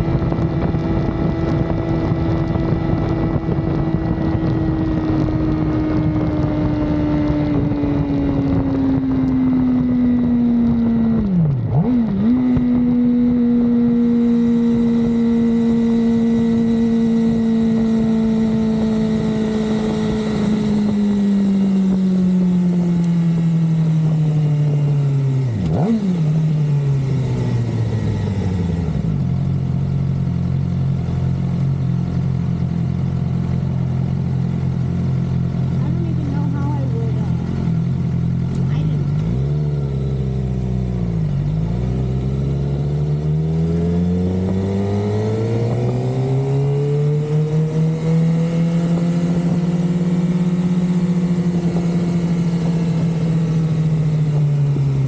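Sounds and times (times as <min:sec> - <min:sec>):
wind noise: 0:00.0 - 0:29.2.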